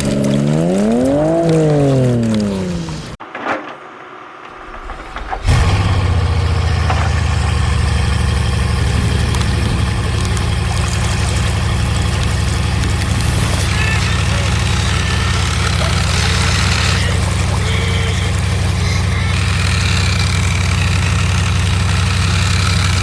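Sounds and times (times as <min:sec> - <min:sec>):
engine running with deep hum: 0:00.0 - 0:03.2, 0:05.4 - 0:23.0
faint clicks: 0:00.0 - 0:03.2.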